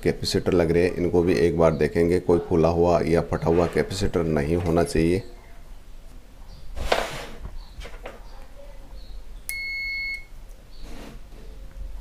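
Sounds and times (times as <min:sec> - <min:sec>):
multimeter continuity beep: 0:09.5 - 0:10.4.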